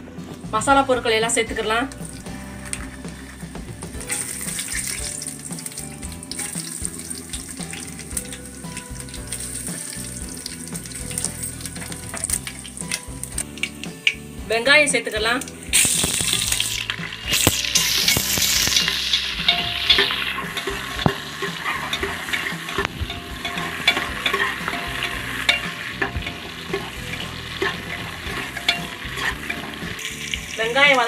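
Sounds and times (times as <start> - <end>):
onions sizzling in hot oil: 1.6 - 31.0
spoon clicking and scraping cooker: 17.3 - 30.3.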